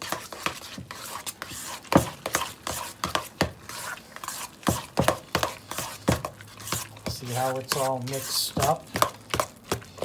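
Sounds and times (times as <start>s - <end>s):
utensil scraping bowl: 0.0s - 10.0s.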